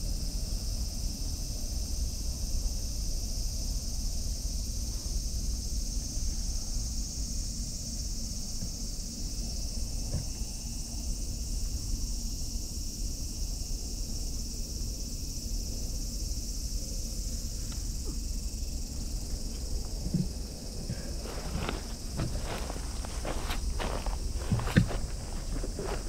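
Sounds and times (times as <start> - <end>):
insect chorus drone: 0.0 - 26.0
soft rustles: 19.0 - 26.0.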